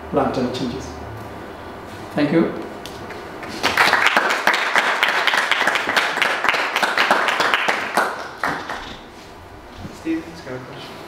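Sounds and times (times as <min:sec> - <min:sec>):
audience applauding: 0:03.4 - 0:09.0.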